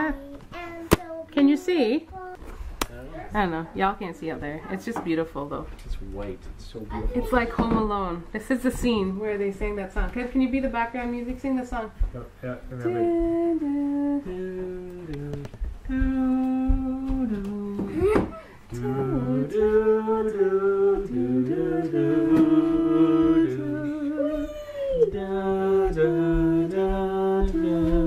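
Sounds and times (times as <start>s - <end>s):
person humming a slow tune: 12.8s - 28.0s.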